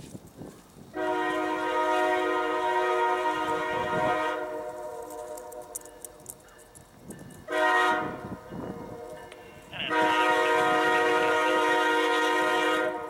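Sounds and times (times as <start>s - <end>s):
locomotive air horn: 0.9s - 6.0s, 7.5s - 13.0s.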